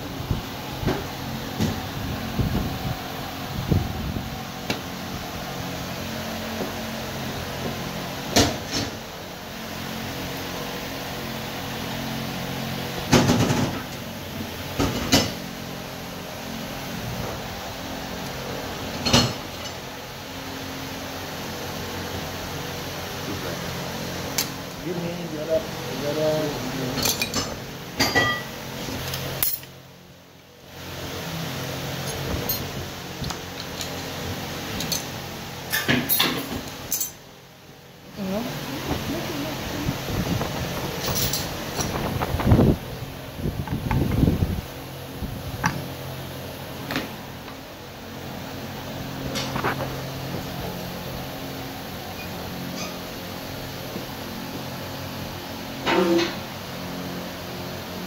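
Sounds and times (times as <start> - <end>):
steady background noise: 0.0 - 58.0
steel gear parts clinking: 29.4 - 29.7, 35.7 - 37.2, 41.0 - 41.5.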